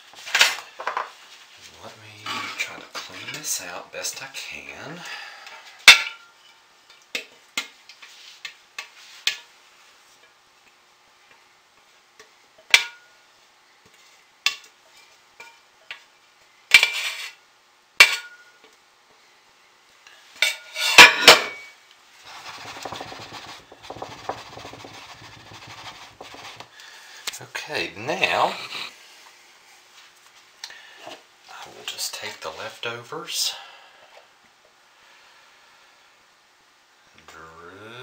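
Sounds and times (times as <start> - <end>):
rustling rubbing sound: 8.1 - 8.4, 22.2 - 26.7
utensil clinking on mixing container: 22.3 - 26.6.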